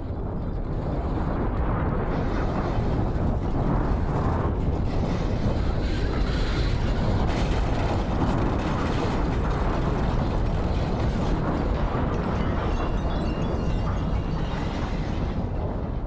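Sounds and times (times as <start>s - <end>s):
deep earthquake rumbling: 0.0s - 16.0s
debris crashing down: 6.7s - 15.8s.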